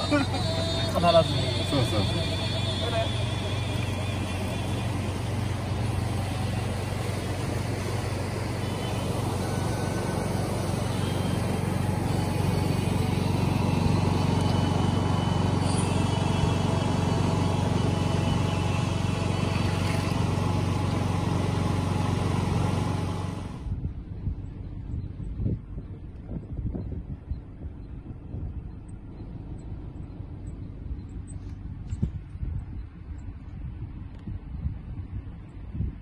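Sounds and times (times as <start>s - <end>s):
low rumble: 0.0s - 36.0s.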